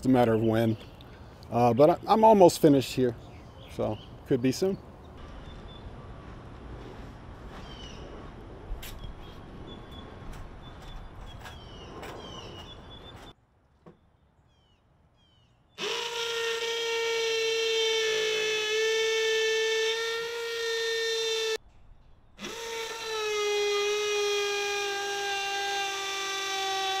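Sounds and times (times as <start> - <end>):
cordless drill whining: 15.8 - 21.6, 22.4 - 27.0.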